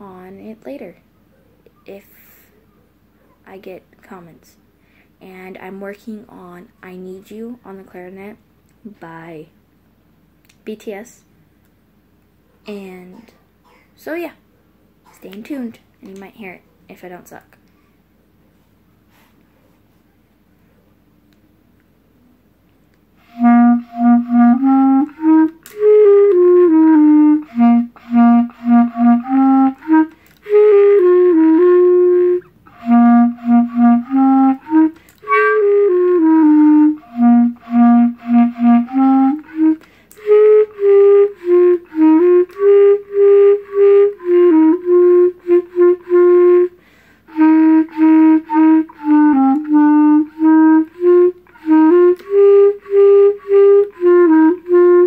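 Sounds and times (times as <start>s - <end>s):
solo clarinet melody: 23.2s - 55.0s.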